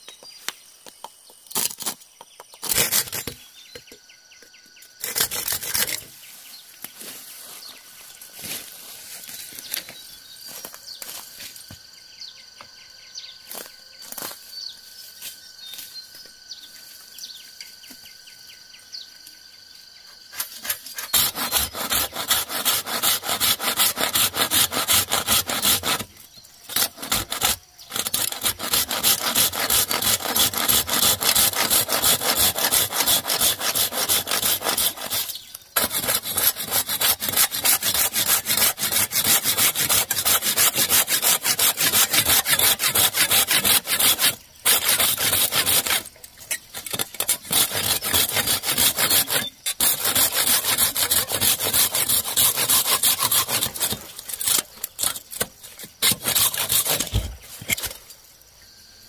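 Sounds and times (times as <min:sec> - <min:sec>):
handsaw cutting bamboo: 0:02.6 - 0:03.4, 0:05.0 - 0:06.2, 0:20.3 - 0:58.0.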